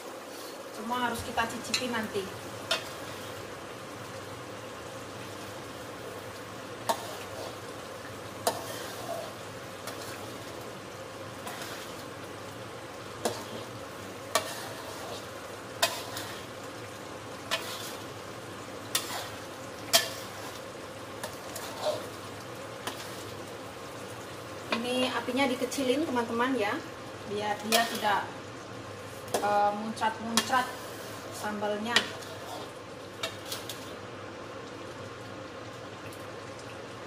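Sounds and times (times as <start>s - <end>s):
sauce sizzling in metal pan: 0.0s - 37.0s
metal spatula stirring: 6.8s - 7.7s, 8.4s - 10.5s, 11.4s - 12.1s, 13.2s - 18.2s, 18.9s - 20.6s, 21.2s - 23.4s, 27.6s - 28.2s, 30.3s - 33.9s.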